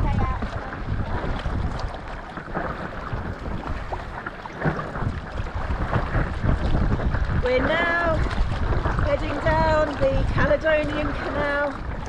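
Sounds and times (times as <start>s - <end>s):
paddle strokes in water: 0.0s - 12.0s
wind buffeting microphone: 0.0s - 12.0s.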